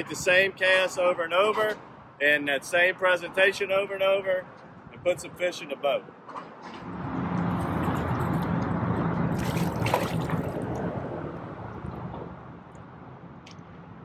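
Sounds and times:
fish splashing: 9.3s - 10.8s
water sloshing: 9.3s - 10.9s.

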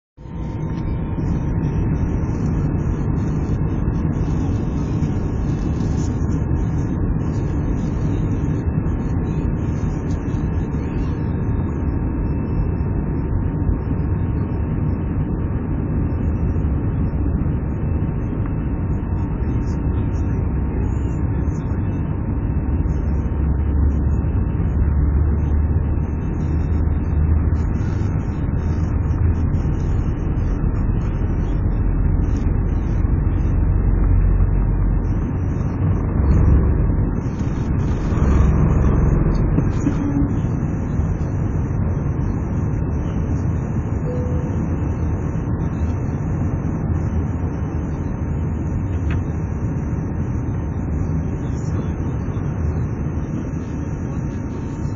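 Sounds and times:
low rumble: 0.0s - 54.9s
jet engines at takeoff power: 0.2s - 54.9s
thin high engine tone: 18.9s - 54.9s.

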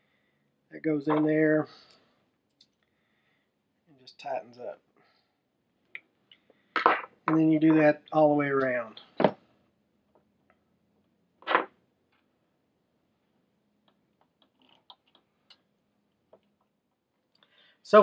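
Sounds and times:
small parts clicking: 13.8s - 15.7s.

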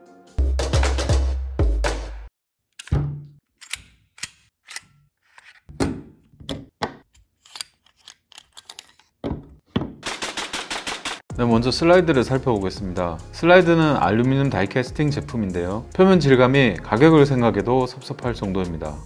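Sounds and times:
pistol parts clicking and clacking: 3.6s - 5.6s, 7.1s - 9.2s.

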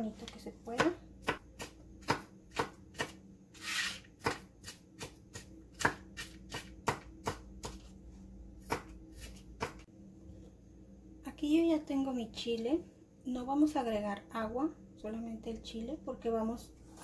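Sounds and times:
knife scraping board: 3.0s - 4.8s.

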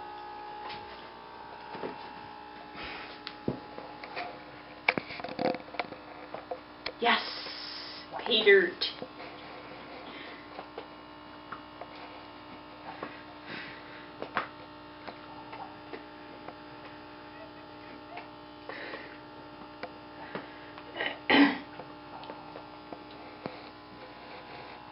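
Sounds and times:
electrical hum: 0.0s - 24.9s.

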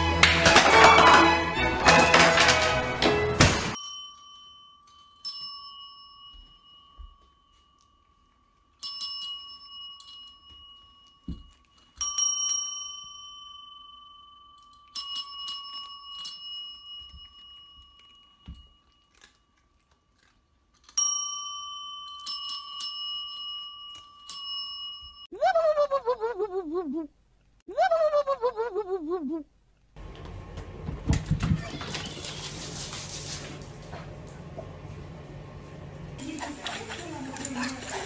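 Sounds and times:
desk service bell dinging: 3.8s - 8.1s, 12.0s - 18.8s, 21.0s - 25.3s.

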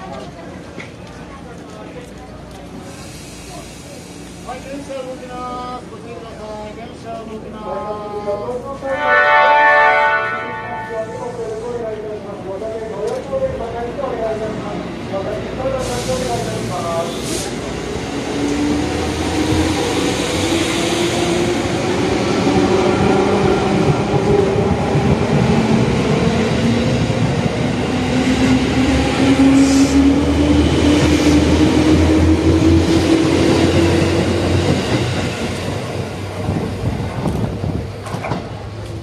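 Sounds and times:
train wheels rumbling: 11.2s - 39.0s.

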